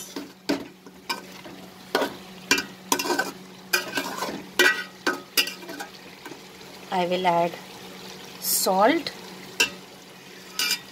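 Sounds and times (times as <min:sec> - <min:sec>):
food sizzling: 0:00.0 - 0:10.9
metal spatula scraping a pot: 0:02.0 - 0:06.0, 0:10.5 - 0:10.9.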